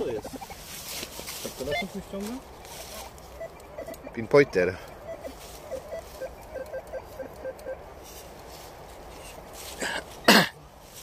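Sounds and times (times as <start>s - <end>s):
short beeps: 5.0s - 7.8s.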